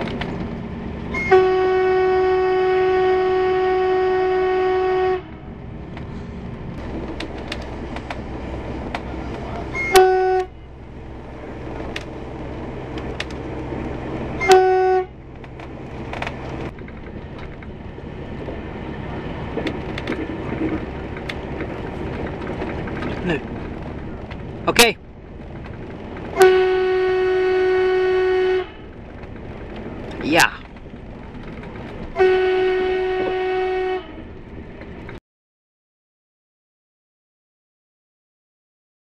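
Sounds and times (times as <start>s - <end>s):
train rumbling on track: 0.0s - 35.2s
train horn blasts: 1.1s - 5.5s, 9.7s - 10.6s, 14.4s - 15.2s, 26.4s - 28.9s, 32.2s - 34.3s.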